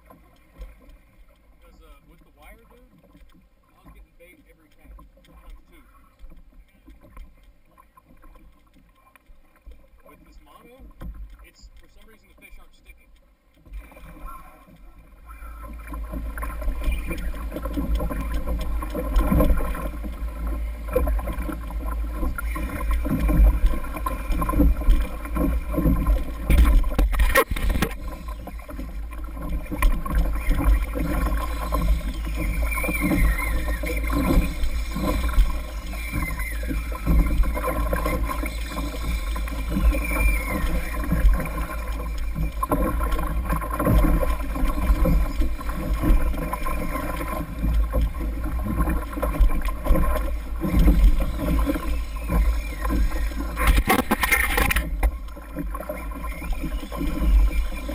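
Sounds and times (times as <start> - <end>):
water rushing against hull: 0.0 - 57.9
knocks and splashes: 15.6 - 57.6.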